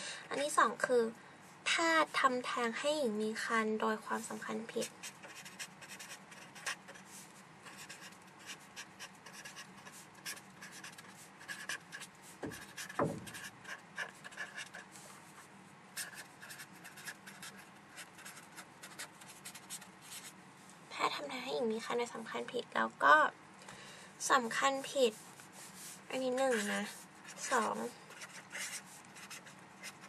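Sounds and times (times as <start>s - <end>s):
pen scratching on paper: 4.3s - 15.0s, 16.0s - 20.3s, 24.8s - 30.0s
low thumps: 12.4s - 13.4s.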